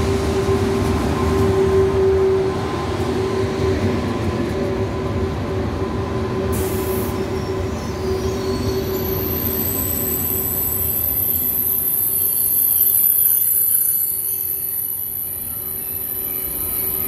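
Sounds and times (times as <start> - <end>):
train wheels rumbling on rail: 0.0 - 17.0
train whine: 0.0 - 17.0
high-pitched brake squeal: 6.5 - 17.0.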